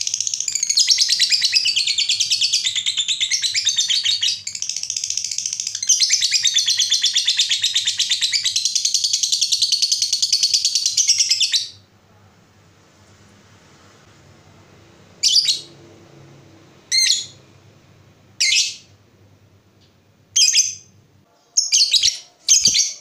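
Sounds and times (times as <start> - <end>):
lovebird chattering: 0.0 - 11.8, 16.9 - 17.4.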